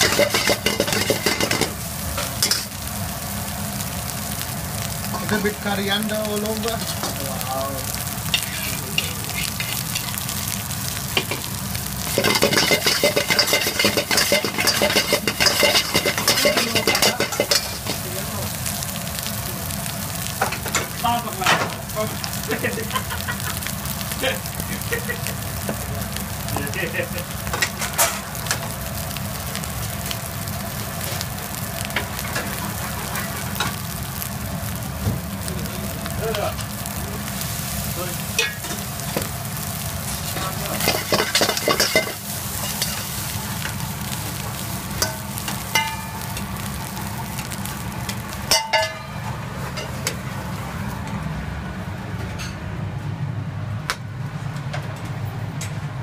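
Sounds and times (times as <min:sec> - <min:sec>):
metal spoon scraping a wok: 0:00.0 - 0:01.8, 0:09.3 - 0:10.0, 0:12.1 - 0:18.0, 0:40.8 - 0:43.2
rice sizzling in a wok: 0:00.0 - 0:56.0.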